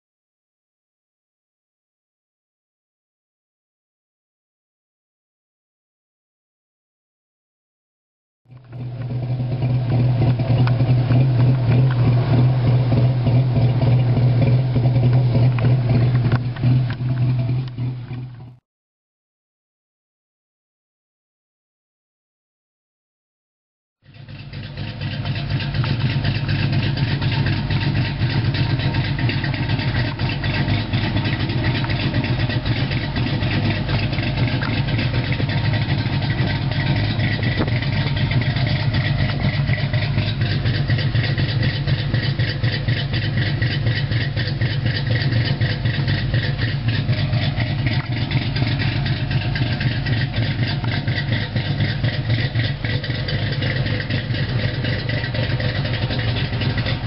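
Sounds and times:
car engine idling: 8.5s - 18.6s, 24.0s - 57.0s.

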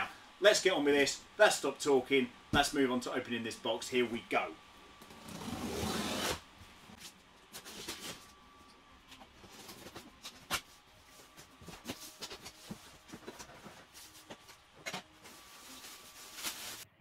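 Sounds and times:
knife slitting packing tape: 5.5s - 6.4s
plastic wrapping rustling: 9.4s - 17.0s.

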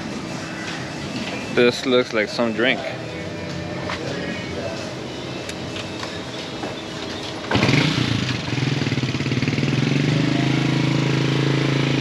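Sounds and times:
motorcycle engine starting and idling: 7.0s - 12.0s.

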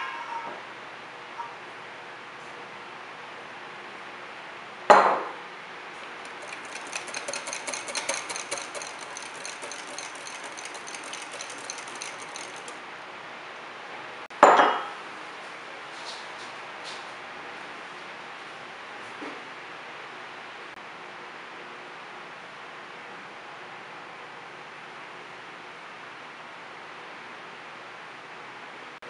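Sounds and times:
whisk clicking against glass bowl: 6.0s - 12.8s.

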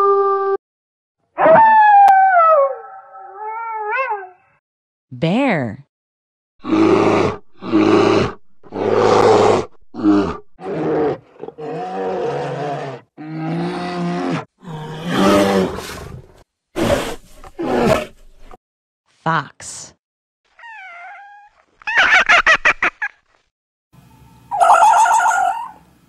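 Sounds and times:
bear growling and roaring: 6.6s - 18.6s.

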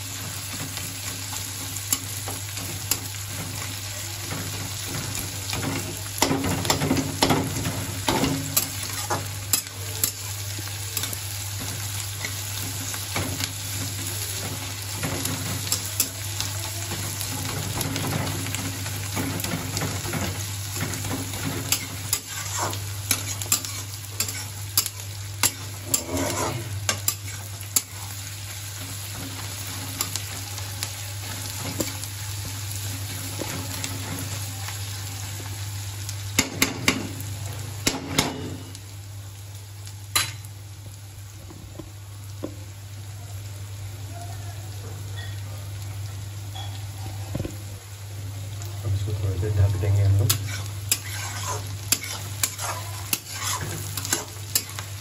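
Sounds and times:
onions sizzling in oil: 0.0s - 55.0s
spatula scraping a pan: 17.4s - 28.3s, 50.3s - 54.9s.

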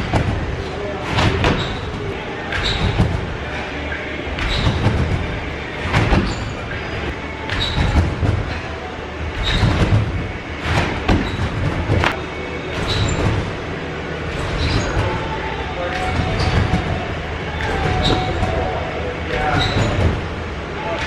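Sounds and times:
trampoline bounces thumping: 0.0s - 21.0s.

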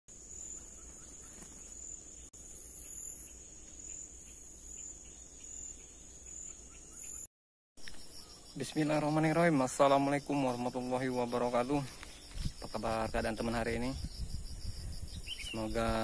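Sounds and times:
insects droning: 0.1s - 16.0s
higher insect buzz: 7.8s - 16.0s.

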